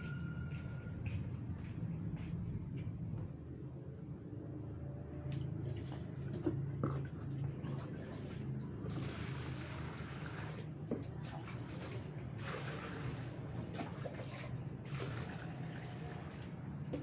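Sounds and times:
water pouring into plastic bucket: 0:05.3 - 0:17.0.

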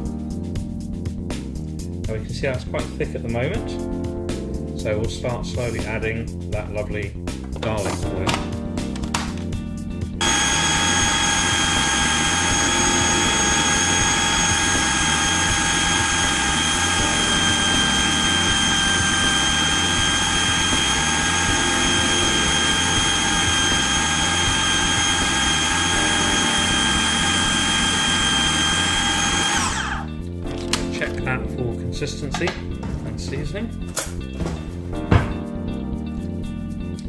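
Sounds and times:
food processor motor whining: 0:10.2 - 0:30.2.

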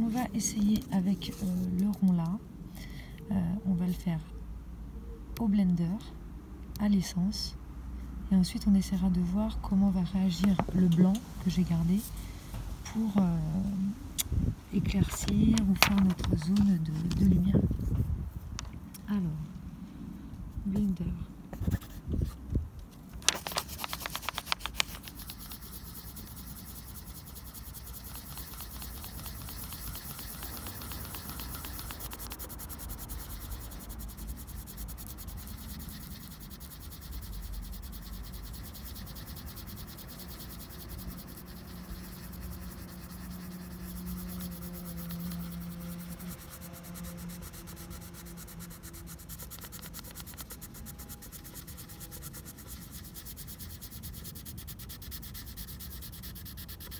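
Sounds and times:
pencil rubbing on paper: 0:00.0 - 0:02.0, 0:23.3 - 0:56.9.

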